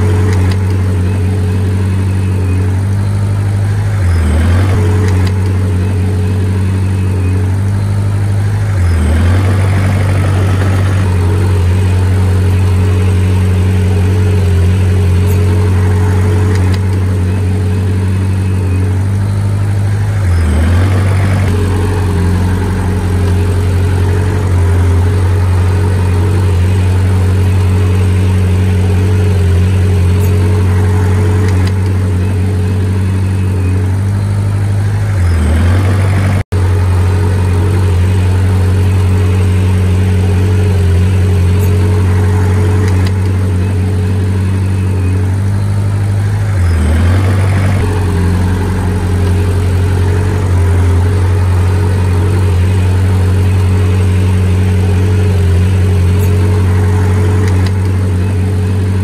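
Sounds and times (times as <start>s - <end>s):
heavy diesel engine running: 0.0s - 59.0s.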